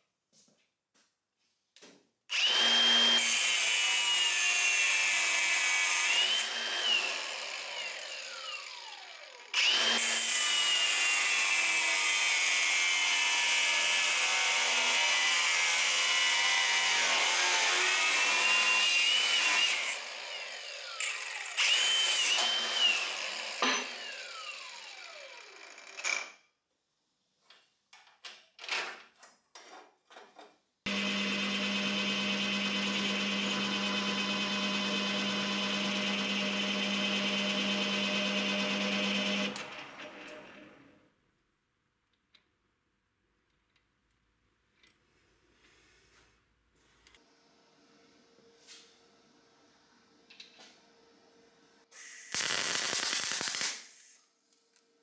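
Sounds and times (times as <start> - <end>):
power tool motor whine: 16.2 - 25.6, 30.9 - 40.8.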